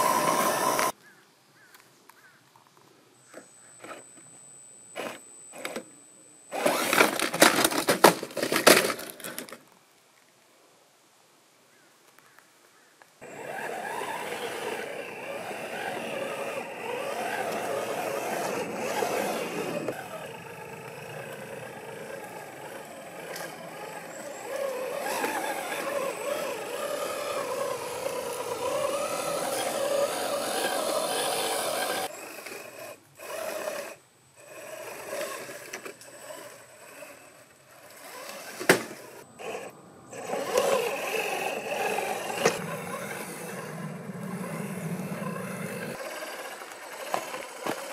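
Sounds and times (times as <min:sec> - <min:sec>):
toy car motor whine: 0:00.0 - 0:01.0, 0:04.9 - 0:05.9, 0:06.5 - 0:07.8, 0:13.2 - 0:47.9.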